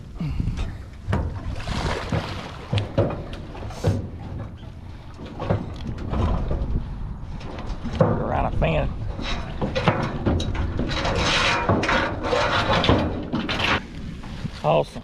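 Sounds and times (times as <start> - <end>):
knocks and thumps on metal dock: 0.6 - 13.9
water splashing: 1.0 - 6.5.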